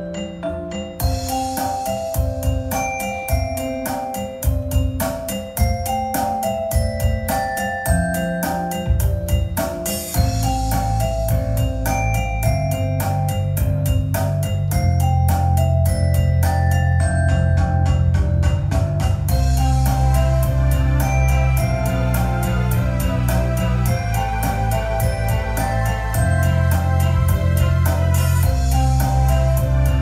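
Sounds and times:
bright mallet-like electronic notes: 0.0 - 30.0
deep bass: 10.2 - 30.0.

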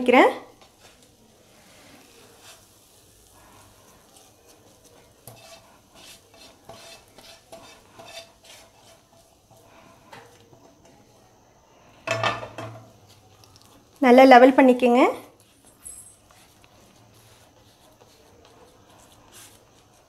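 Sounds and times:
spatula scraping dough in pan: 0.6 - 11.1, 16.3 - 20.0.

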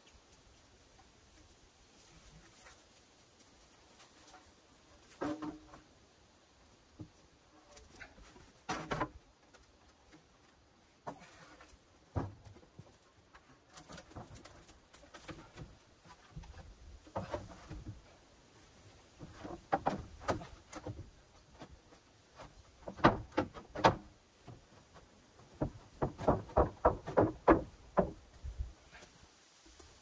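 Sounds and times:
wooden boards knocking and scraping: 5.1 - 5.8, 7.9 - 10.3, 11.0 - 18.2, 19.2 - 28.7.

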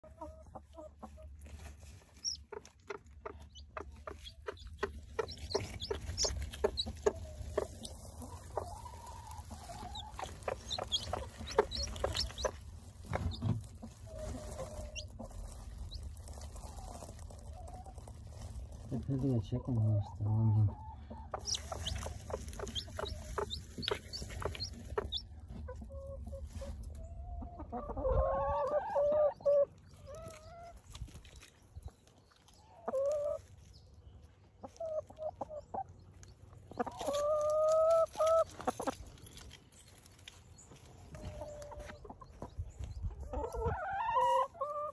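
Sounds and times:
chicks peeping: 0.0 - 39.1, 40.3 - 44.9
hens clucking and calling: 2.1 - 15.5, 19.8 - 30.8, 41.1 - 44.9.

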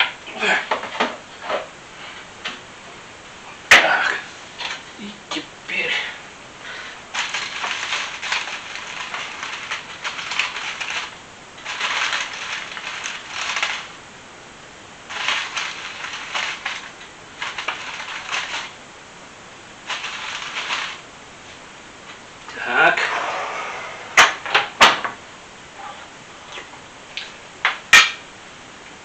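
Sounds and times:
crunching and rustling in kitchen: 6.7 - 14.0.

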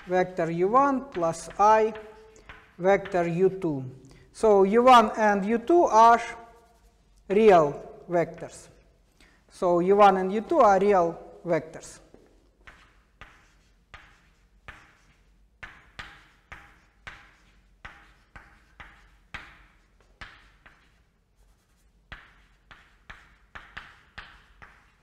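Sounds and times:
chalk writing on blackboard: 0.0 - 3.6, 4.7 - 9.4, 11.8 - 25.0.

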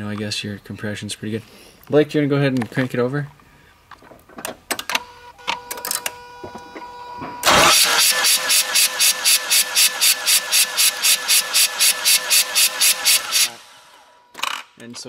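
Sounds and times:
rotary engine cranking on starter: 7.4 - 14.7.

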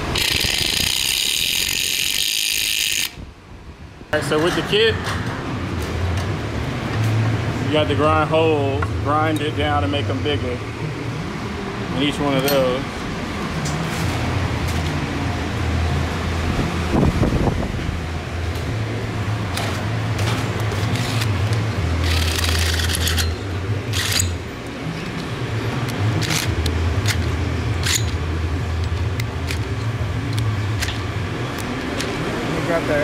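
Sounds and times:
metal parts clicking and knocking: 20.6 - 24.4, 25.1 - 31.0.

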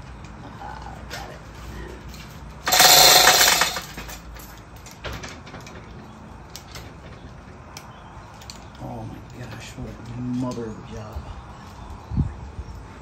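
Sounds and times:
metal engine parts clattering: 2.6 - 6.0.

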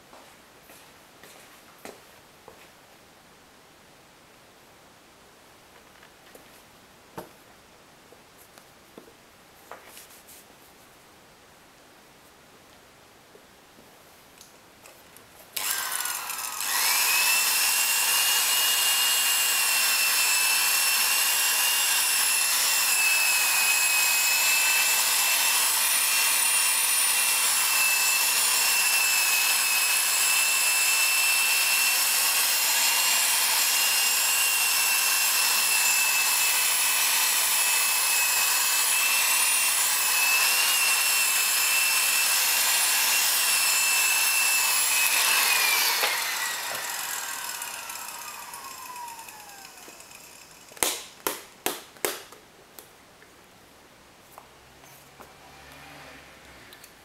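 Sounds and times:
electric drill whining: 15.6 - 50.8.

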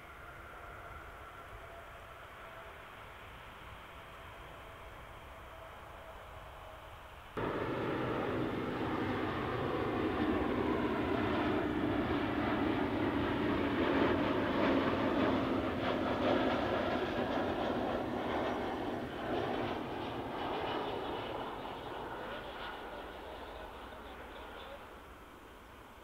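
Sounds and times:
jet engine rumble: 7.2 - 26.0.

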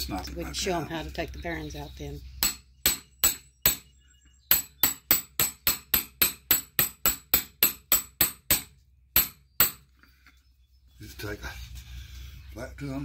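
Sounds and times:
hammer striking metal: 2.4 - 3.9, 4.5 - 9.8.

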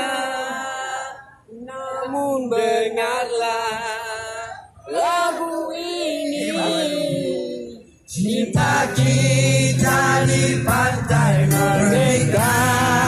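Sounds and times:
acoustic guitar: 8.6 - 13.0.

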